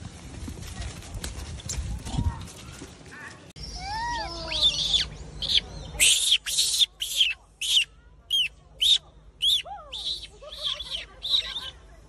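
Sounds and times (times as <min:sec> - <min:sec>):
macaque high-pitched calls: 0:03.6 - 0:11.8.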